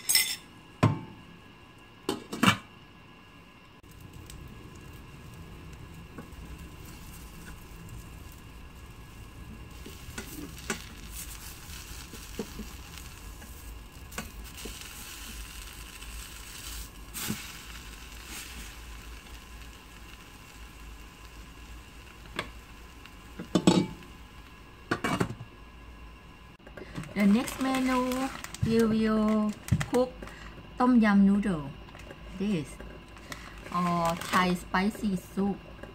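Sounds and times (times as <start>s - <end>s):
omelet sizzling in frying pan: 3.8s - 30.4s, 33.0s - 35.1s.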